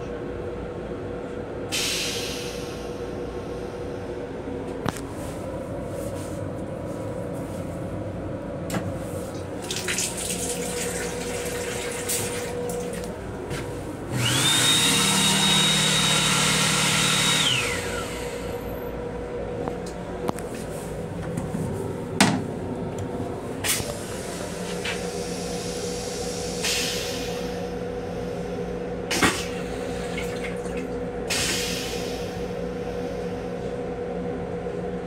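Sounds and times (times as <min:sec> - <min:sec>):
train running hum: 0:00.0 - 0:35.0
hand dryer blowing: 0:14.2 - 0:18.4.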